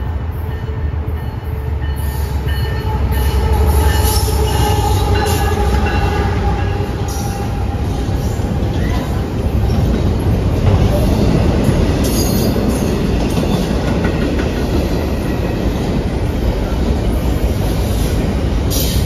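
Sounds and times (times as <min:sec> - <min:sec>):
diesel locomotive engine rumbling: 0:00.0 - 0:19.0.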